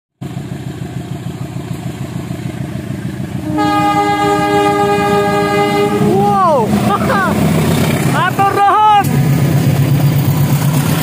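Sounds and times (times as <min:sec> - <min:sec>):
locomotive engine rumbling: 0:00.2 - 0:11.0
locomotive horn: 0:03.4 - 0:06.5.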